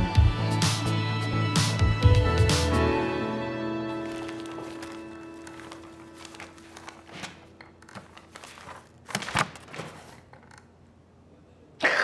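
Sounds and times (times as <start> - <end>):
rustling: 4.0 - 10.3.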